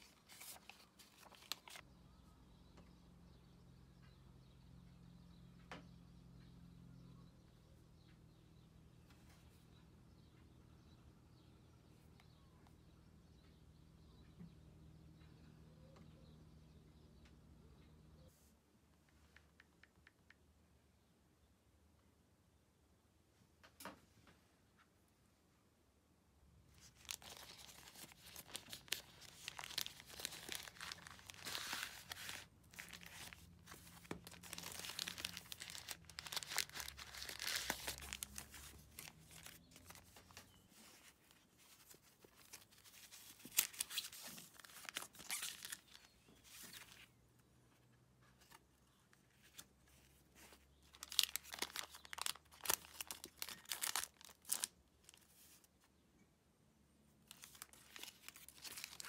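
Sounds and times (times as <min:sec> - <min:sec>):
packaging crinkling and tearing: 0:00.0 - 0:01.8, 0:26.8 - 0:40.5, 0:41.8 - 0:47.0, 0:50.7 - 0:55.2, 0:57.3 - 0:59.0.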